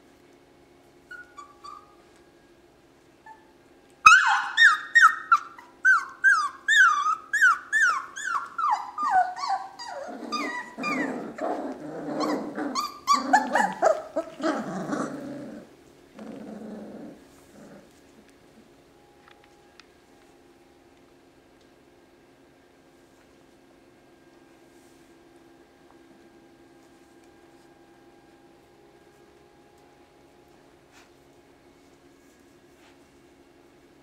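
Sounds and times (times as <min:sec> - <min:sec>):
puppies yelping: 0:01.1 - 0:02.0, 0:04.1 - 0:15.7
puppy growls: 0:04.6 - 0:18.6.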